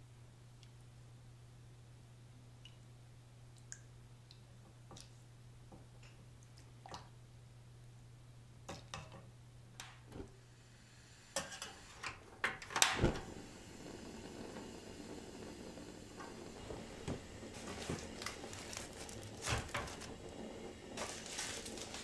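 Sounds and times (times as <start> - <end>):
gas burner hissing: 10.3 - 12.2, 13.0 - 22.0.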